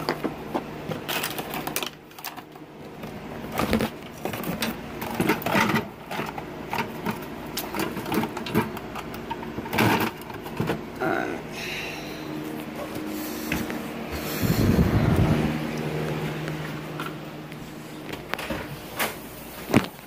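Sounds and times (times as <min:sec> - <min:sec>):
phone handling clicks and rustles: 0:00.0 - 0:10.9
steady low hum: 0:00.0 - 0:20.0.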